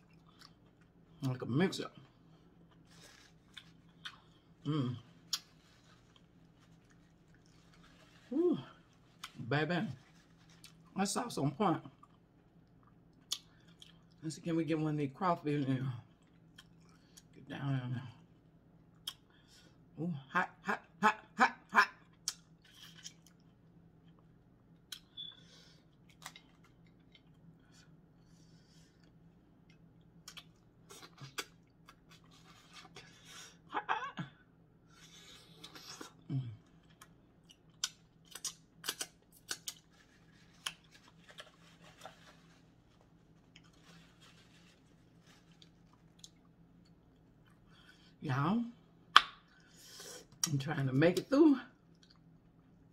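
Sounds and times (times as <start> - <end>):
person chewing: 0.0 - 1.2, 2.1 - 9.4, 10.1 - 10.9, 12.0 - 14.2, 16.1 - 17.4, 28.9 - 33.3, 34.9 - 48.0
wet rustling: 2.7 - 11.0, 39.4 - 46.4.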